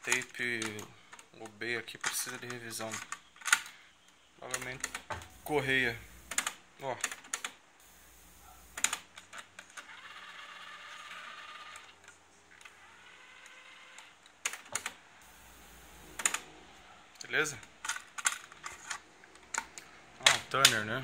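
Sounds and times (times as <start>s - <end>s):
faint hiss: 5.2s - 6.5s, 7.8s - 9.0s, 15.2s - 17.7s.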